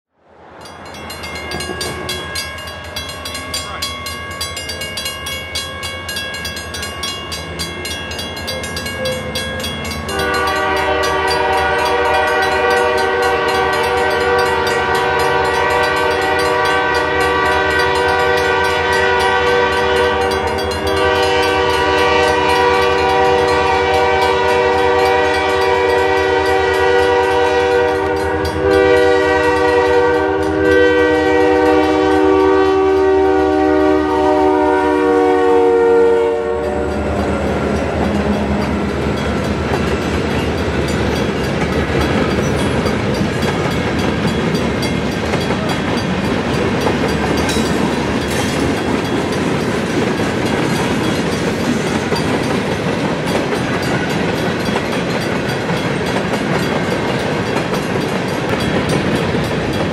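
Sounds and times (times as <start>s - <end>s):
locomotive air horn: 8.5s - 38.7s.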